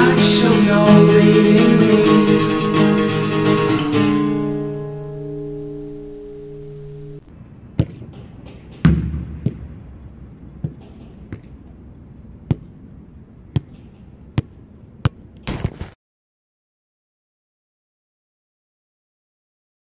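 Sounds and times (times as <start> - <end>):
acoustic guitar music: 0.0 - 7.3
faint room noise: 0.0 - 7.6.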